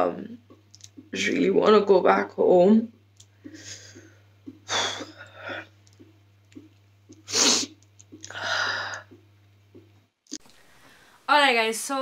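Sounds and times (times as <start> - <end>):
person sniffing and sobbing: 4.6 - 5.7, 7.2 - 9.0.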